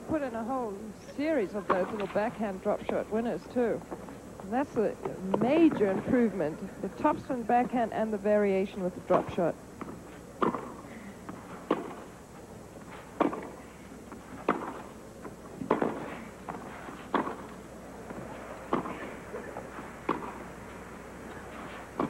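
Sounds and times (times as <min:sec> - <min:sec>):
tennis rackets hitting ball: 0:01.6 - 0:03.9, 0:04.7 - 0:06.2, 0:09.0 - 0:12.2, 0:12.8 - 0:20.6, 0:21.2 - 0:22.0.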